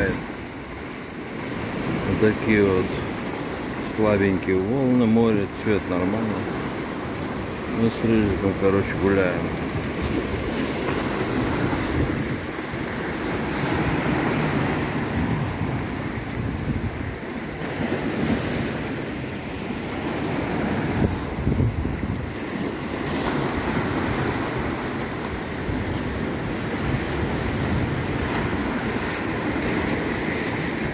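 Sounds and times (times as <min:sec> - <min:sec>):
waves washing over rocks: 0:00.0 - 0:30.9
wind on the microphone: 0:09.4 - 0:19.0, 0:20.2 - 0:30.9.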